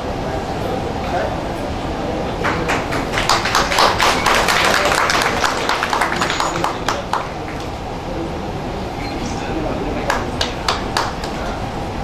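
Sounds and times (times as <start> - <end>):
scattered applause: 2.3 - 8.2, 9.4 - 11.7.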